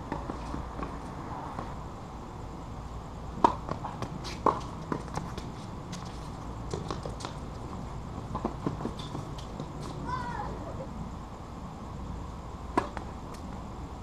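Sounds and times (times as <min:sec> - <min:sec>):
tennis ball pops: 0:12.7 - 0:13.4.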